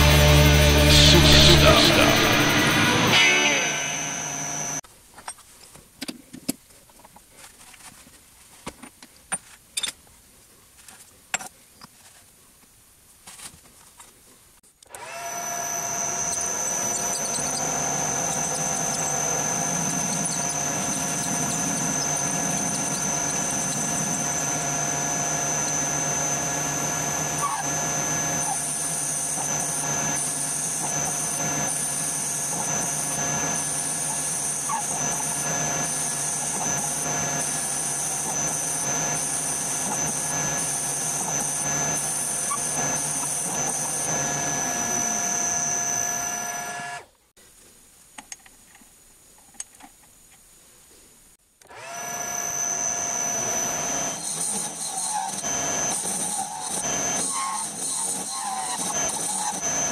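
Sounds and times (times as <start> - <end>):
metal lathe gear whine: 0.0 - 4.8, 14.9 - 47.1, 51.7 - 59.9.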